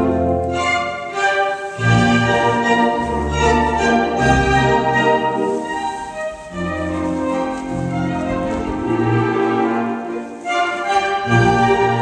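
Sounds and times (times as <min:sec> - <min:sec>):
orchestral music: 0:00.0 - 0:12.0.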